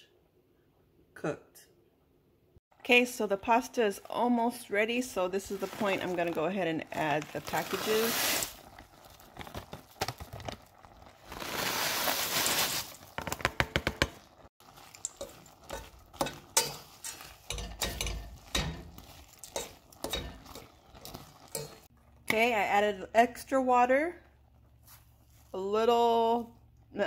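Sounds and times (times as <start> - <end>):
dry pasta mix rustling: 5.1 - 13.3, 14.6 - 17.6
pieces falling into pot clicking: 13.0 - 21.9
spoon scraping and knocking pot: 13.3 - 21.9.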